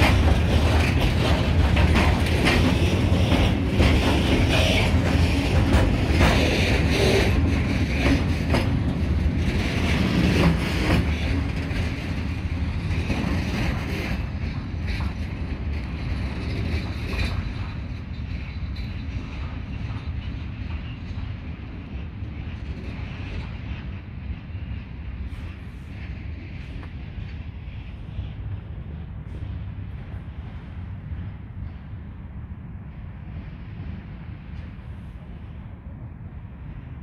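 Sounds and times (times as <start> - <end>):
wheels clicking over rail joints: 0.0 - 27.4
freight train rumbling past: 0.0 - 37.0.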